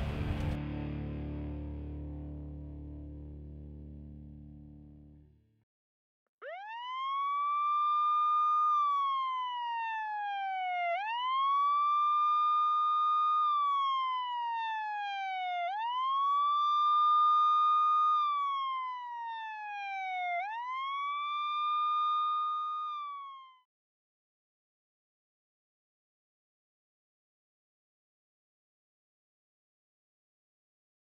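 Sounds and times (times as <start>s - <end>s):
emergency siren wailing: 6.4s - 23.7s.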